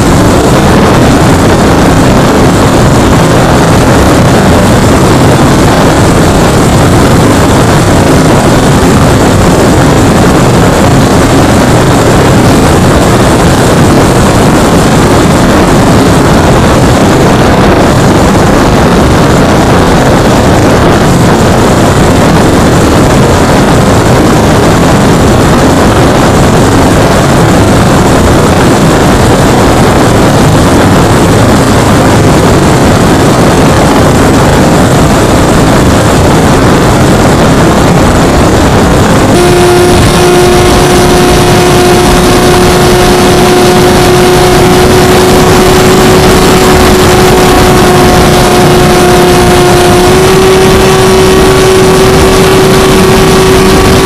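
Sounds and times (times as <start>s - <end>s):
propeller noise: 0.0s - 54.0s
wind rush: 0.0s - 54.0s
electric motor hum: 33.0s - 54.0s.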